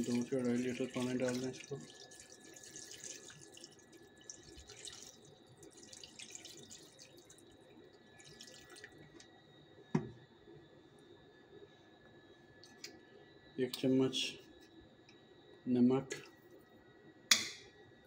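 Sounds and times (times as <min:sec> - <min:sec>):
water trickling into metal pot: 0:00.0 - 0:09.2.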